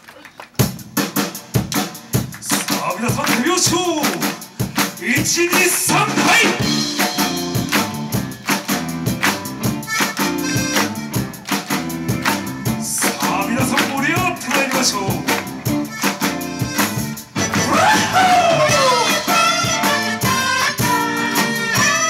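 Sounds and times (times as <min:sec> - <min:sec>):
hand claps on the beat: 0:00.0 - 0:06.2, 0:07.0 - 0:19.4
live band playing up-tempo music: 0:00.5 - 0:22.0
saxophone: 0:09.6 - 0:12.8, 0:15.7 - 0:22.0.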